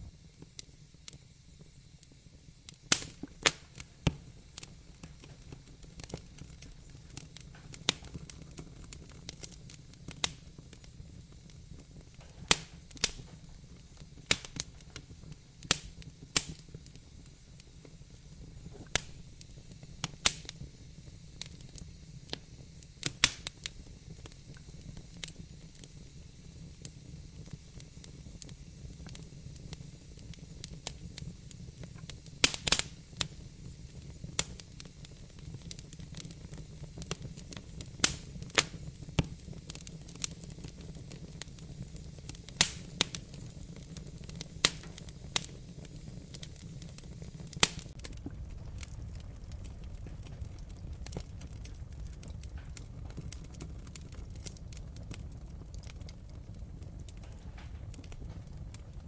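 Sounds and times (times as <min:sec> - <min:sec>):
low steady rumble: 0:00.0 - 0:00.3, 0:46.6 - 0:59.0
wood fire crackling: 0:00.0 - 0:59.0.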